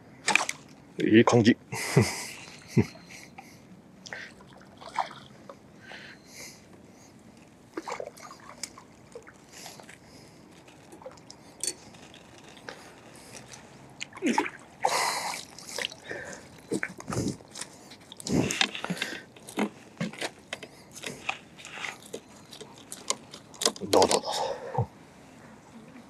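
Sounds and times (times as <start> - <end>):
fish splashing in water: 4.4 - 5.4, 14.0 - 17.1.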